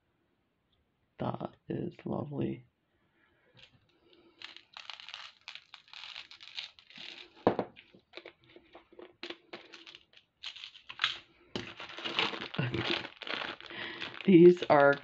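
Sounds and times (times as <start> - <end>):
plastic packaging crinkling: 4.3 - 15.0.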